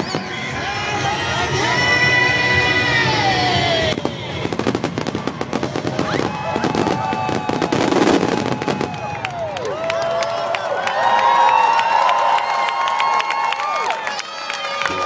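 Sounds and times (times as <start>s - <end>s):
show music: 0.0s - 7.4s
firework bursts and crackling: 2.7s - 9.9s.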